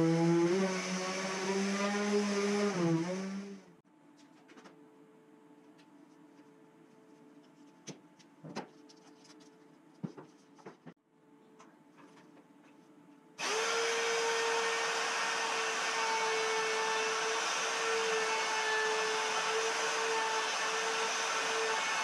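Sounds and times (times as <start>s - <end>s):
router whining: 0.0s - 3.7s, 13.4s - 22.0s.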